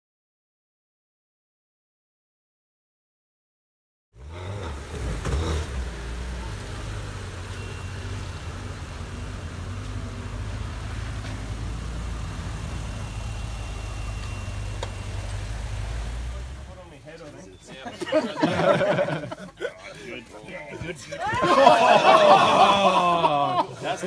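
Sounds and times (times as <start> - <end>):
car engine running: 4.2 - 17.9.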